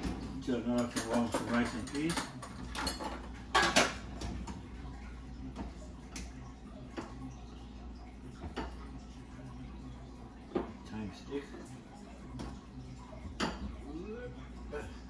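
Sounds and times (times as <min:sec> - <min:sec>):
pots and dishes clattering: 0:00.0 - 0:05.8, 0:08.4 - 0:09.0, 0:12.3 - 0:13.9.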